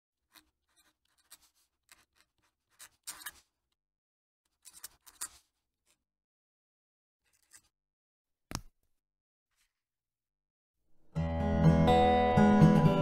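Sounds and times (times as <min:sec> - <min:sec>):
pen nib scratching on paper: 0:00.3 - 0:03.6, 0:04.5 - 0:05.6.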